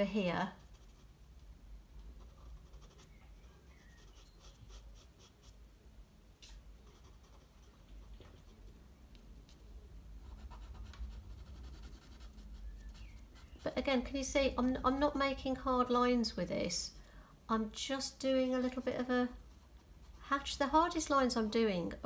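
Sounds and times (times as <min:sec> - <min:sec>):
low room hum: 0:00.0 - 0:22.0
pencil scratching on paper: 0:00.5 - 0:01.1, 0:02.2 - 0:05.6, 0:06.8 - 0:07.7, 0:10.2 - 0:13.8, 0:19.0 - 0:20.8.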